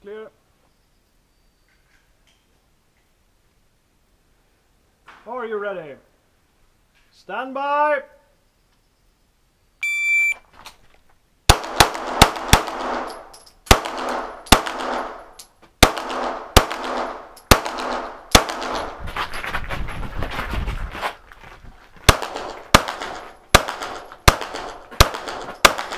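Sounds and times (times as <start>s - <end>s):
shot timer start beep: 9.8s - 10.4s
pistol shots ringing: 11.5s - 19.0s, 22.1s - 25.9s.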